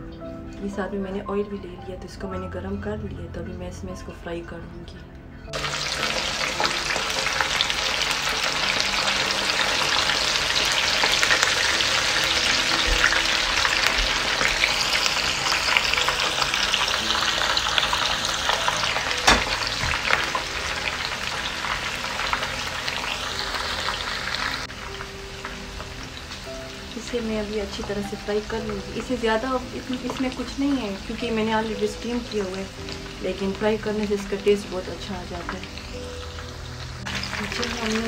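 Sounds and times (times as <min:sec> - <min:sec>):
oil popping: 0:05.5 - 0:26.6
chicken sizzling in hot oil: 0:05.5 - 0:38.0.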